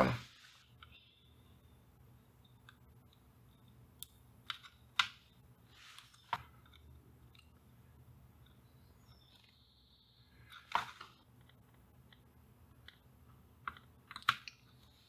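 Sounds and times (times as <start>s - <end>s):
faint clicks and ticks: 2.2s - 5.4s, 6.0s - 9.6s, 11.2s - 14.9s.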